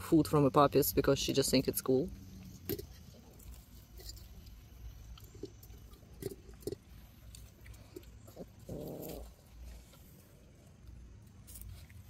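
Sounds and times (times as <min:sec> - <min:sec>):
puppies eating from metal bowls: 0:00.0 - 0:12.0
puppy grunting: 0:08.2 - 0:09.6.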